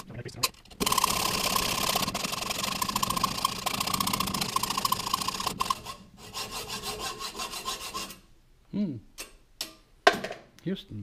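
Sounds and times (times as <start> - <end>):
lathe running hum: 0.8 - 6.0
file scraping metal: 0.8 - 8.3.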